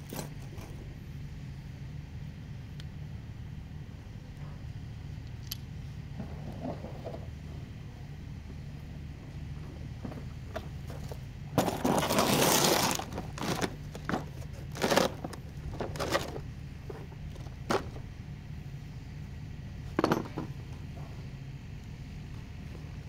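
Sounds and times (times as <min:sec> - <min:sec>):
steady low hum: 0:00.0 - 0:23.0
tools clattering in plastic toolbox: 0:12.8 - 0:16.4.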